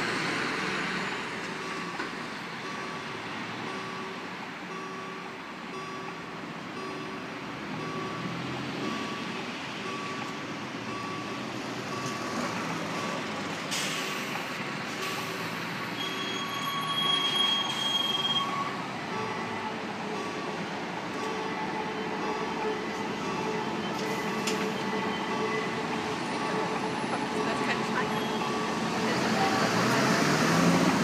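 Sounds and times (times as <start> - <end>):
passing road traffic: 0.0 - 31.0
train approaching: 0.0 - 31.0
electronic warning beeps: 1.6 - 6.2, 7.8 - 10.3, 15.0 - 29.3.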